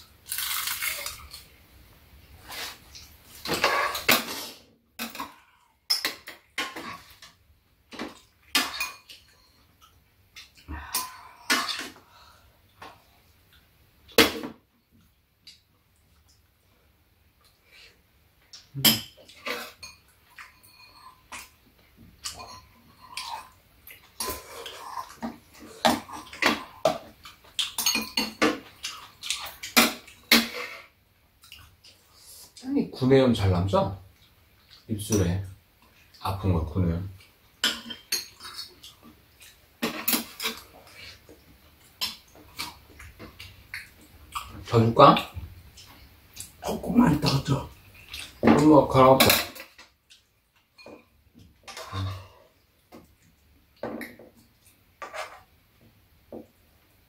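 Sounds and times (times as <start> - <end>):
cutlery clinking on bowls: 7.9 - 9.7, 18.8 - 21.6, 22.2 - 30.8, 37.6 - 41.2, 50.6 - 53.1
metal spoons clinking on pan: 8.6 - 9.6, 18.8 - 21.5, 22.2 - 23.3, 27.6 - 28.6.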